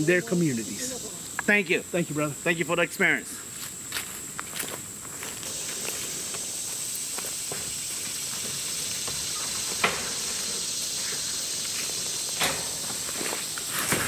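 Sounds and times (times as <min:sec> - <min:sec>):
high-pitched insect drone: 0:00.0 - 0:14.0.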